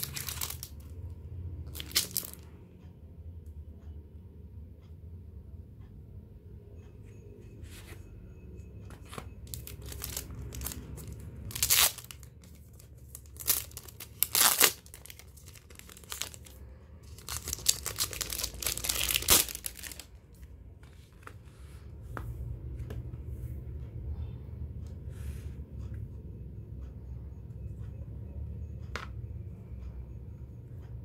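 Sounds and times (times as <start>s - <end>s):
plastic wrapping tearing and crinkling: 0.0s - 0.8s, 1.8s - 2.4s, 9.5s - 12.3s, 13.0s - 20.1s.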